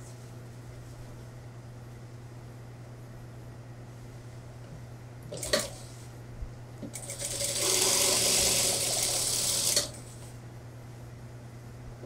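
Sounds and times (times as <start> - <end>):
low steady hum: 0.0 - 12.0
sewing machine stitching: 7.0 - 9.9.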